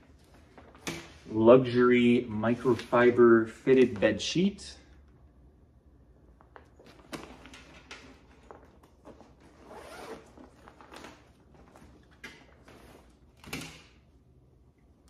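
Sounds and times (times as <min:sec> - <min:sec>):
bed sheet and packaging rustling: 0:08.2 - 0:13.2.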